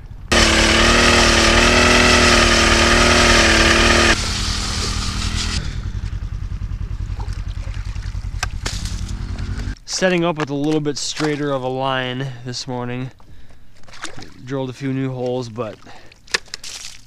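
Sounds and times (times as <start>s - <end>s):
ice auger engine running: 0.3s - 9.8s.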